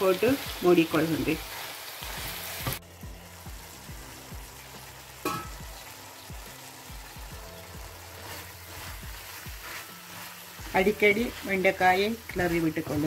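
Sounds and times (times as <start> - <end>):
food sizzling in a frying pan: 0.0 - 13.0
spatula scraping a pan: 7.9 - 13.0.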